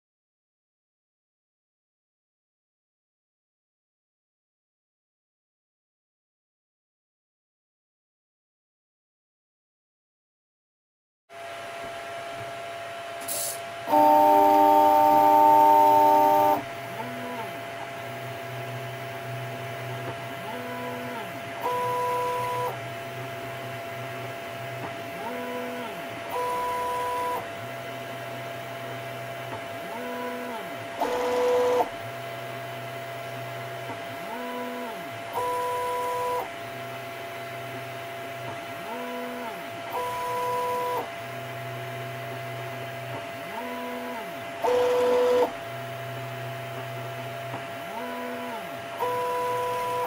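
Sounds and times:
stepper motors whining: 13.9 - 17.4.

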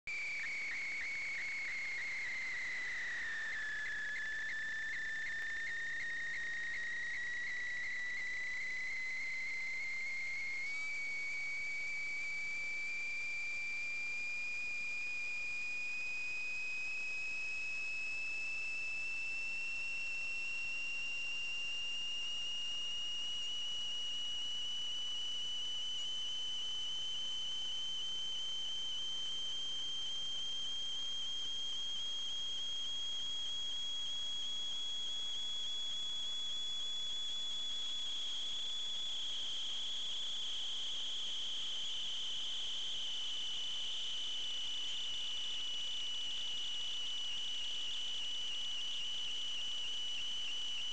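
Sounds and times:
high-pitched electronic whine: 0.1 - 50.9.

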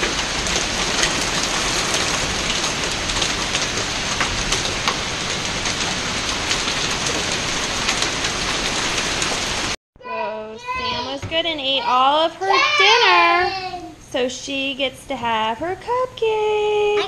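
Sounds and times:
raindrops ticking on hard surfaces: 0.0 - 9.8
heavy rain pouring: 0.0 - 14.0.

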